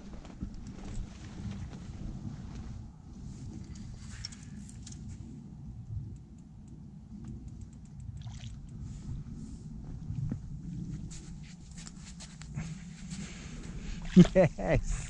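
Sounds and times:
low rumble on microphone: 0.0s - 15.0s
small clicks: 6.1s - 8.8s
water splashing and sloshing: 8.1s - 9.0s, 13.2s - 14.5s.

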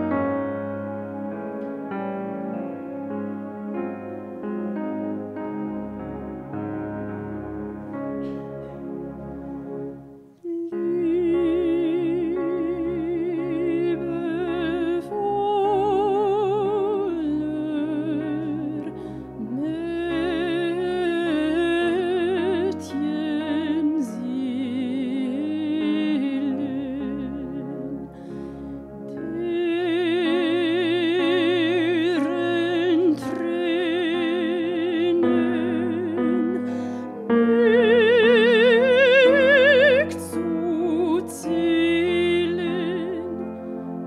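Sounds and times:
held keyboard chords: 0.0s - 44.0s
person singing with vibrato: 10.4s - 44.0s.

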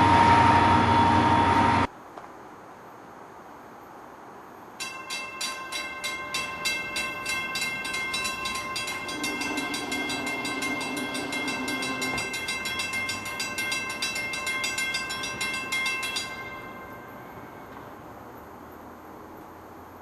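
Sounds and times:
distant train horn: 0.0s - 1.9s, 5.7s - 18.1s
crossing warning bell ringing: 4.8s - 18.4s.

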